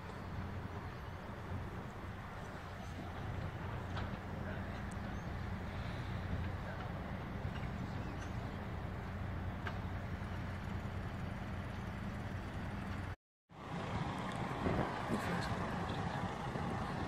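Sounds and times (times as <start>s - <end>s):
large engine droning: 0.0s - 17.0s
wind buffeting microphone: 13.7s - 17.0s.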